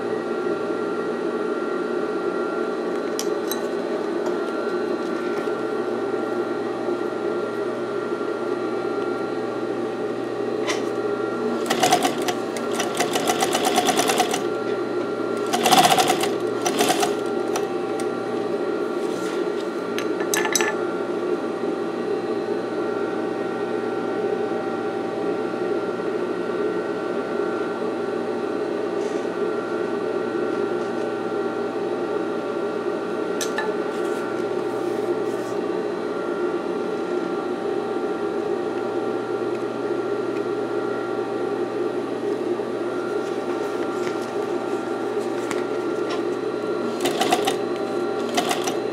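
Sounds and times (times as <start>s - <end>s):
sewing machine motor humming: 11.5s - 14.7s, 15.3s - 18.1s, 46.8s - 48.8s.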